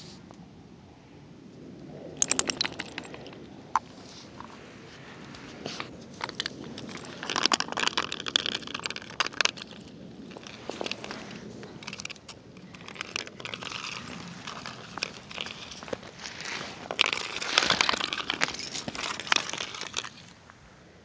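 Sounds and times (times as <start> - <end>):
dog claws scratching on ice: 5.6 - 20.3.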